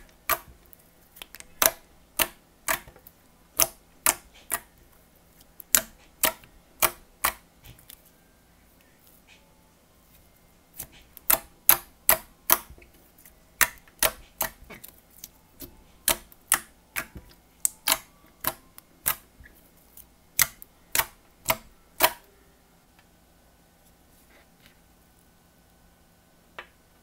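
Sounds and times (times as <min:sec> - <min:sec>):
fingers squishing slime: 0:00.0 - 0:08.1, 0:10.1 - 0:22.2.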